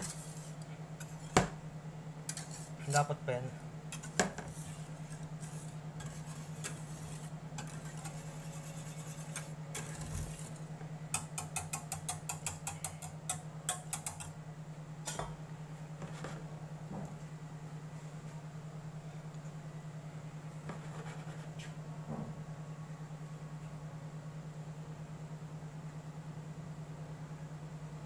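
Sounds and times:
steady low hum: 0.0 - 28.0
wire whisk ticking against pan: 11.1 - 14.4.

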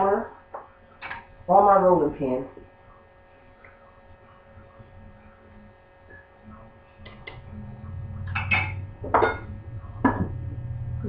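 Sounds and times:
steady electrical hum: 0.0 - 11.0
low rumble: 7.2 - 11.0
kitchen things knocking and clattering: 8.3 - 10.3.

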